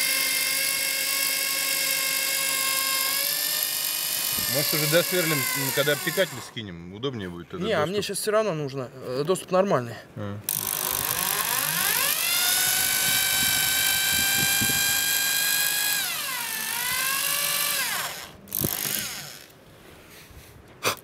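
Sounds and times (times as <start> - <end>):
electric drill motor whine: 0.0 - 6.6, 10.5 - 19.5.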